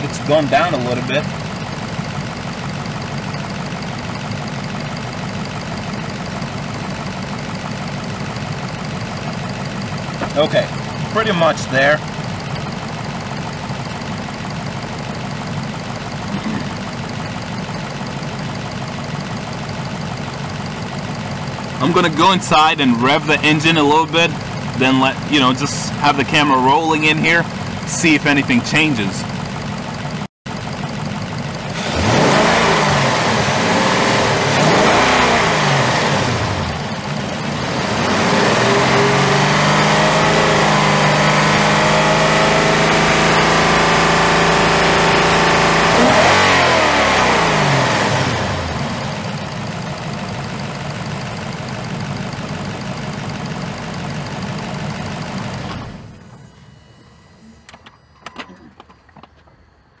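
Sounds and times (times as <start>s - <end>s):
car engine revving and idling: 0.0s - 59.8s.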